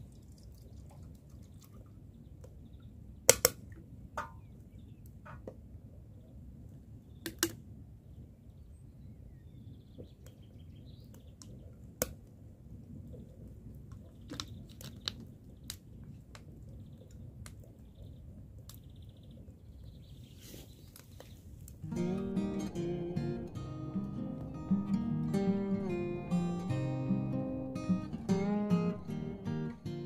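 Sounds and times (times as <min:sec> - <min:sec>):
firewood snapping and clicking: 0:03.3 - 0:03.6, 0:07.2 - 0:07.6, 0:13.9 - 0:16.5
low steady rumble: 0:21.8 - 0:30.0.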